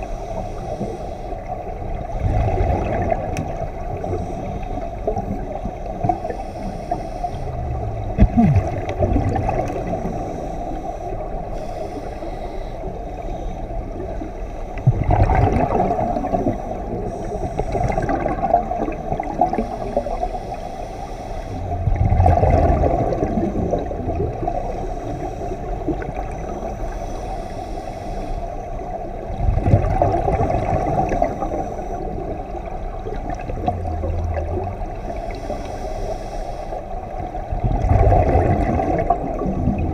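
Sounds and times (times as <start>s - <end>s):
scuba breathing rush: 0.0s - 1.6s, 3.7s - 9.0s, 9.7s - 14.9s, 16.0s - 18.4s, 19.2s - 28.9s, 30.8s - 32.9s, 33.6s - 37.3s
regulator bubbles gurgling: 0.0s - 20.6s, 21.5s - 27.1s, 28.5s - 39.9s.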